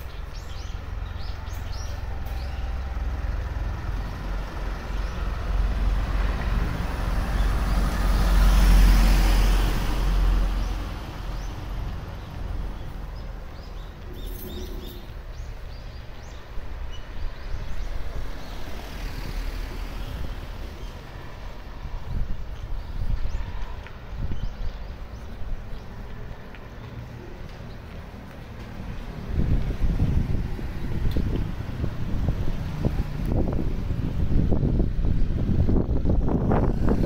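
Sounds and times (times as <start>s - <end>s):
low traffic rumble: 0.0s - 37.0s
motor vehicle passing: 2.8s - 15.8s, 25.8s - 37.0s.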